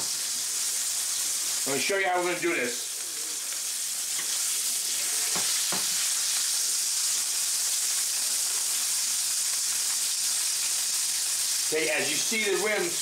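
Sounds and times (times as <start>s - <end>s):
steak sizzling in a pan: 0.0s - 13.0s.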